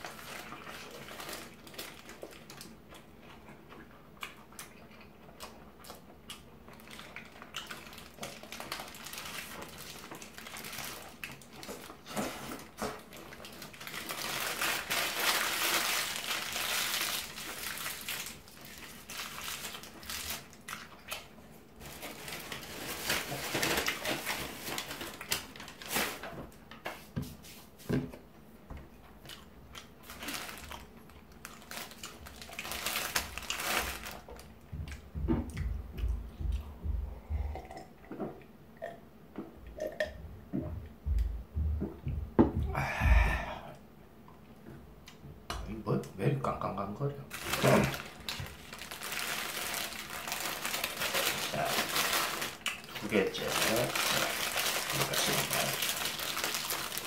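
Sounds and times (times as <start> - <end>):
paper wrapper crinkling: 0.0 - 2.8, 6.8 - 26.3, 29.8 - 34.5, 47.3 - 57.0
chewing: 0.4 - 8.8.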